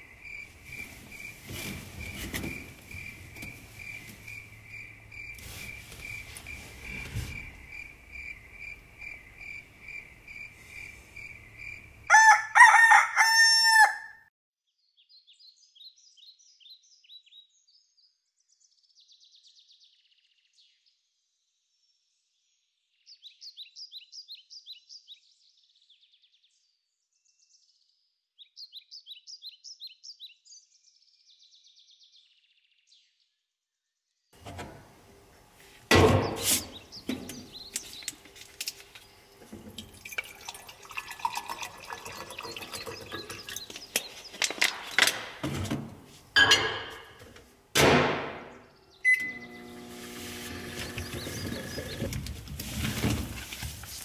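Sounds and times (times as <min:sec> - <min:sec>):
crickets chirping: 0:00.0 - 0:12.1
rooster crowing: 0:12.0 - 0:14.3.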